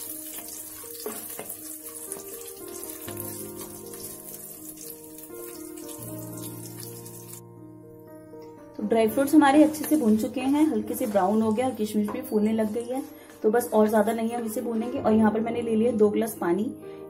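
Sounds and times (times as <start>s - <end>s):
food sizzling in hot fat: 0.0s - 7.4s, 9.6s - 13.1s
spatula stirring: 0.0s - 7.4s, 9.2s - 13.1s
soft background music: 0.0s - 17.0s.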